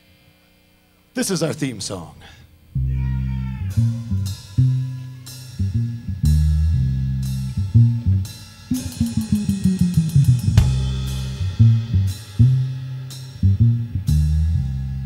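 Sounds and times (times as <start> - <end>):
upright double bass notes: 2.7 - 15.0
crash cymbals: 8.3 - 13.5
fast drum roll: 8.7 - 12.9.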